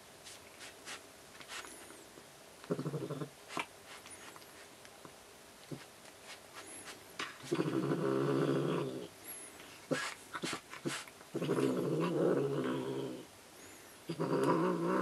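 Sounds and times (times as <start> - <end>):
cat growling: 2.6 - 3.3, 7.4 - 9.1, 11.3 - 13.3, 14.1 - 15.0.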